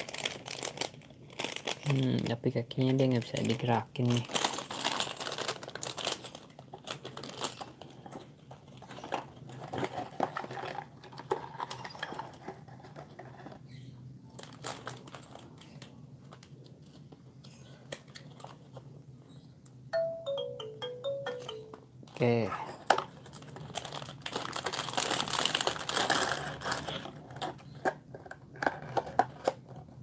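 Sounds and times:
plastic bags crinkling: 0.0s - 13.5s, 14.3s - 15.9s, 22.9s - 27.8s.

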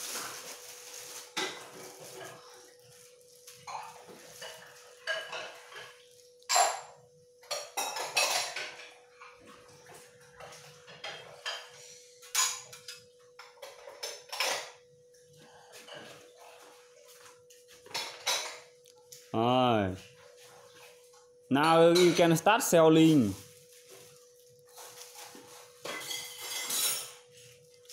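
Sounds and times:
books and papers clattering: 0.0s - 6.1s, 20.3s - 27.9s.

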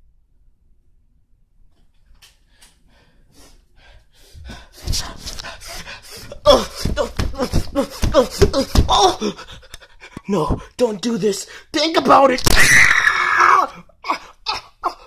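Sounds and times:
person gasping: 2.6s - 10.8s.

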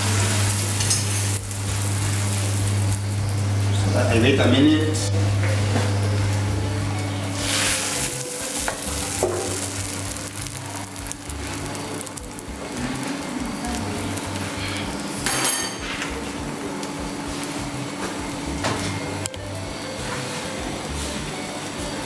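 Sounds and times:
food sizzling in a pan: 0.0s - 22.0s
background music: 15.9s - 22.0s.

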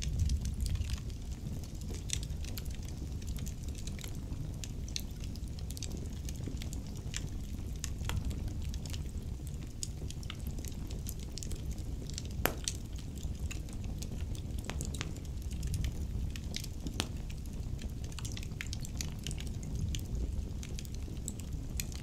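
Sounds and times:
wood fire crackling and popping: 0.0s - 22.0s.

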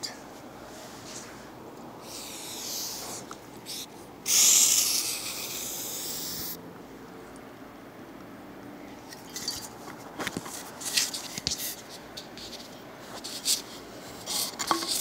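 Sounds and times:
aerosol can spraying: 2.0s - 6.6s.

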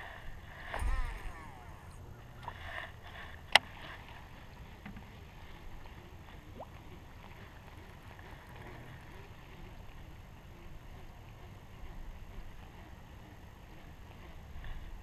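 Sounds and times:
water around boat: 0.0s - 15.0s
wind: 0.0s - 15.0s
sharp click: 0.7s - 2.6s.

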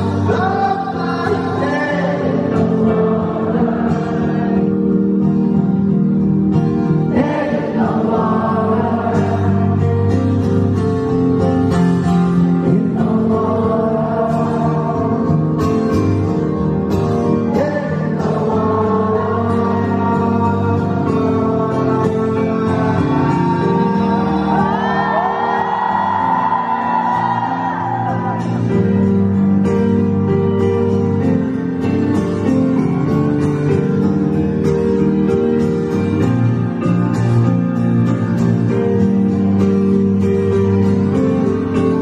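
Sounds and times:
man singing: 0.0s - 5.0s, 6.9s - 10.2s, 12.5s - 15.9s, 17.2s - 25.9s
acoustic guitar: 0.0s - 42.0s.

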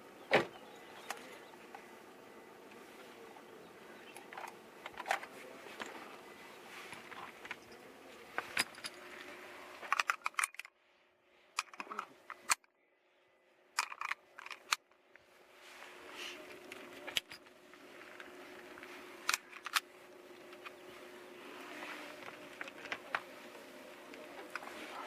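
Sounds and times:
background hum: 0.0s - 25.0s
gear clicks and metallic clinks: 8.4s - 9.1s, 9.8s - 10.7s, 13.8s - 14.8s.

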